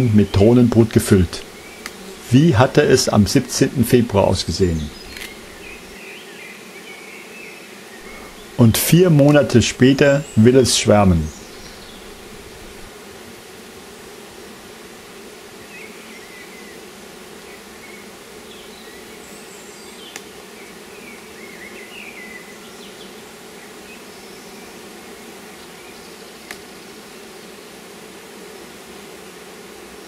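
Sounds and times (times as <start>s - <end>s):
bees humming: 0.0s - 30.0s
hive tool clicking on frames: 1.4s - 2.1s, 4.9s - 5.8s.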